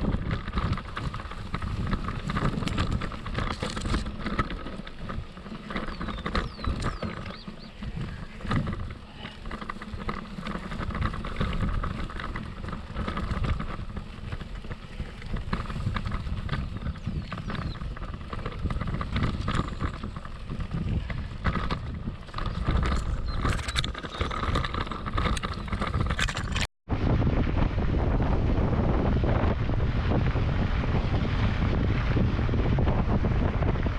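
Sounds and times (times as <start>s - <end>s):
bike chain and frame rattling: 0.0s - 26.7s
rumble of bike tyres: 0.0s - 33.9s
wind on microphone: 0.0s - 33.9s.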